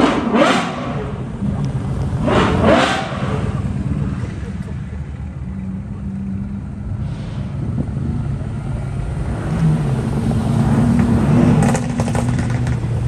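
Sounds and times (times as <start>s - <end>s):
sports car engines passing: 0.0s - 13.0s.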